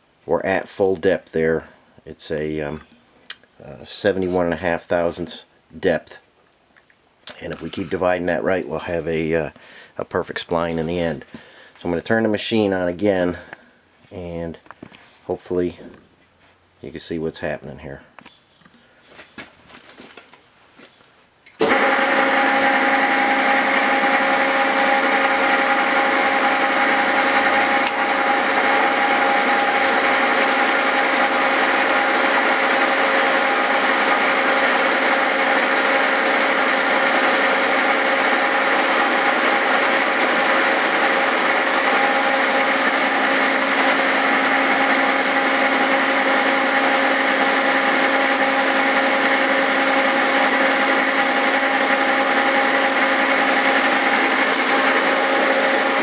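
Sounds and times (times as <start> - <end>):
milling machine hum: 21.6 - 56.0
cutter rasping metal: 22.5 - 56.0.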